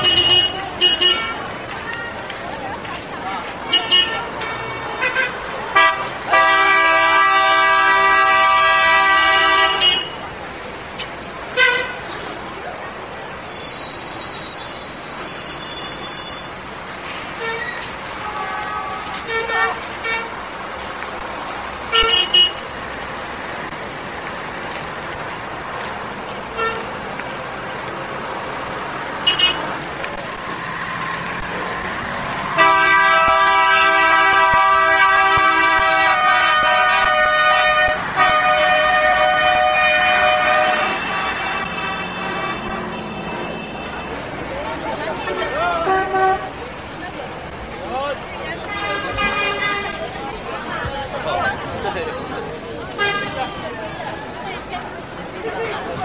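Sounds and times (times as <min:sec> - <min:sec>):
vehicle horn: 0:00.0 - 0:01.4, 0:03.7 - 0:10.2, 0:11.6 - 0:12.0, 0:17.4 - 0:20.4, 0:21.9 - 0:22.6, 0:26.6 - 0:26.9, 0:29.2 - 0:29.7, 0:32.6 - 0:44.2, 0:45.2 - 0:46.6, 0:48.6 - 0:50.0, 0:53.0 - 0:53.6
city traffic hum: 0:00.0 - 0:56.0
steady held horn: 0:32.6 - 0:43.9.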